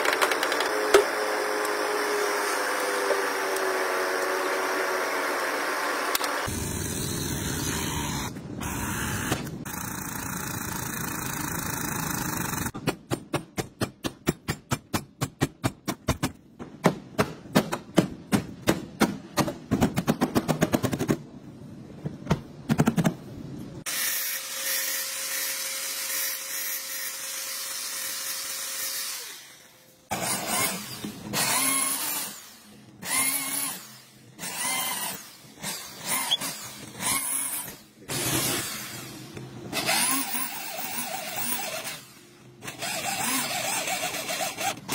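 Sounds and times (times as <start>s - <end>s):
electric drill cutting sheet metal: 0.0s - 12.7s, 23.9s - 44.9s
angle grinder on metal: 39.8s - 44.9s.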